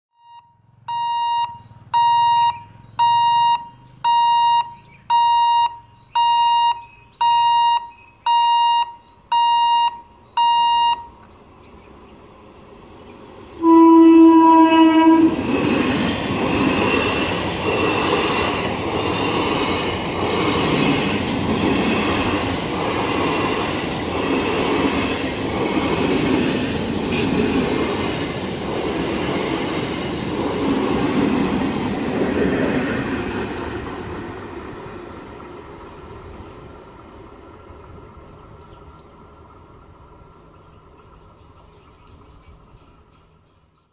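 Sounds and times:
electronic beeper: 0.2s - 11.2s
train rumbling past: 11.3s - 43.5s
train horn blast: 13.6s - 15.5s
train wheels clattering: 15.4s - 33.9s.

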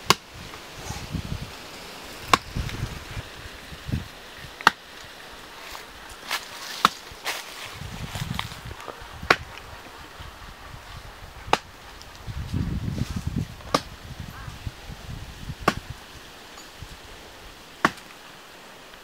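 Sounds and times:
blade chopping wood: 2.3s - 2.5s, 4.6s - 4.8s, 6.8s - 7.0s, 15.6s - 15.9s, 17.8s - 18.2s.

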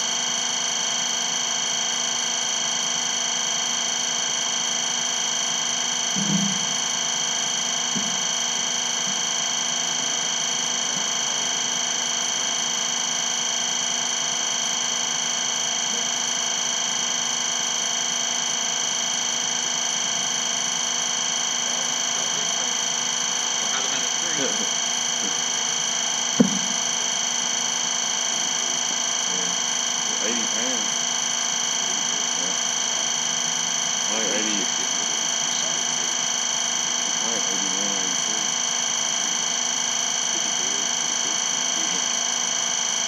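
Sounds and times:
high-pitched electrical whine: 0.0s - 43.0s
dull thump: 26.4s - 26.7s.

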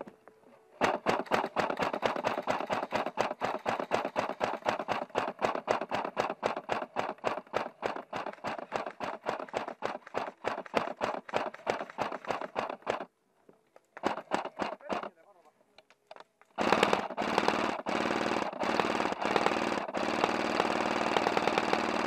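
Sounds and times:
sharp clacks: 0.8s - 13.1s.

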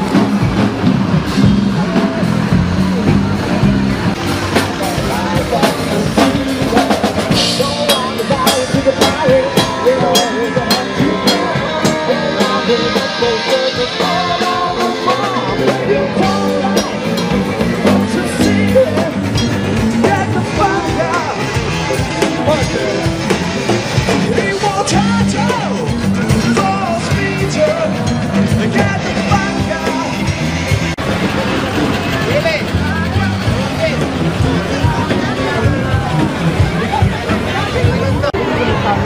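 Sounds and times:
live rock band: 0.0s - 39.0s
person singing: 4.6s - 23.3s, 24.0s - 30.6s.

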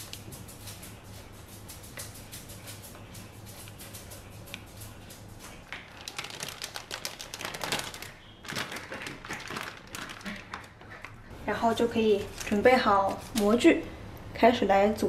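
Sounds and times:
plastic piping bag crackling: 5.7s - 13.8s.

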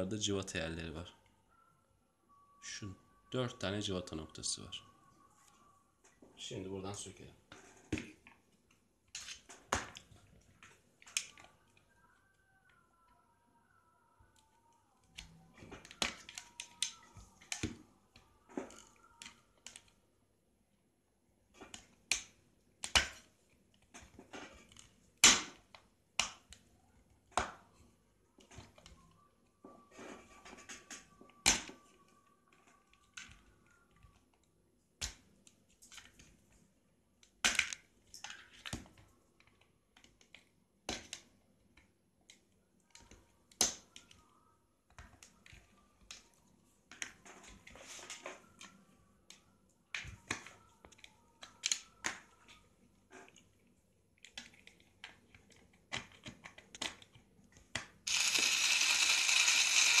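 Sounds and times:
cordless drill running: 58.1s - 60.0s.

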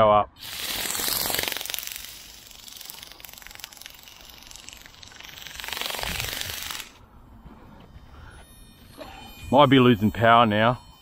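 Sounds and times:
flapping wings rattling buzz: 0.4s - 7.0s.

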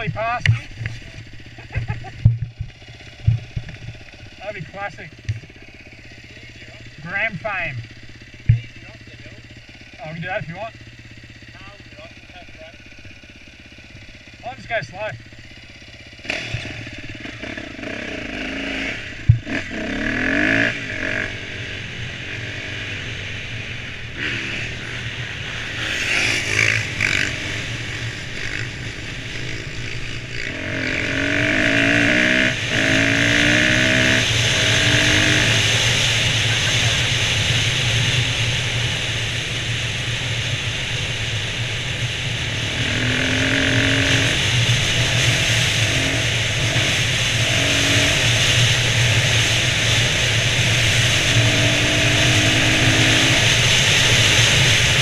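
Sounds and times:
dirt bike engine shifting gears: 0.0s - 39.6s, 40.7s - 55.0s.

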